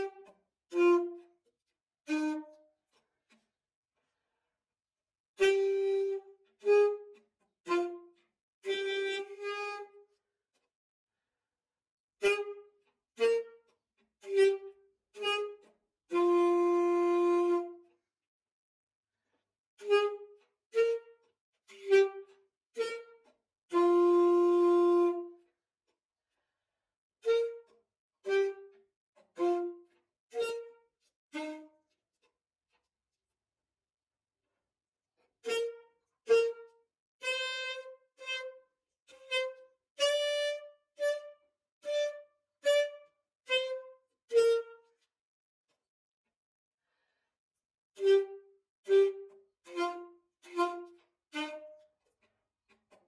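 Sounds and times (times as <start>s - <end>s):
alto saxophone solo: 0.0s - 1.2s, 2.1s - 2.6s, 5.4s - 10.0s, 12.2s - 13.6s, 14.2s - 17.8s, 19.8s - 25.4s, 27.2s - 28.8s, 29.4s - 31.8s, 35.4s - 45.0s, 48.0s - 51.8s.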